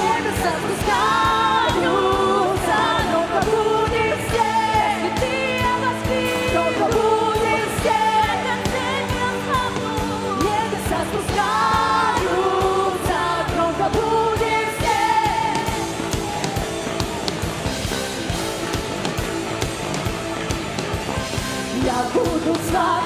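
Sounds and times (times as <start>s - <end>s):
women singing: 0.0s - 16.4s, 21.6s - 23.0s
drum kit: 0.0s - 23.0s
guitars: 0.0s - 23.0s.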